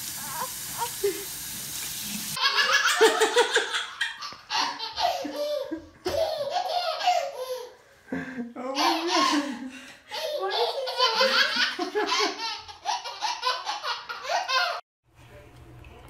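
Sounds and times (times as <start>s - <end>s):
child belly laughing: 2.4s - 7.7s, 8.8s - 14.8s.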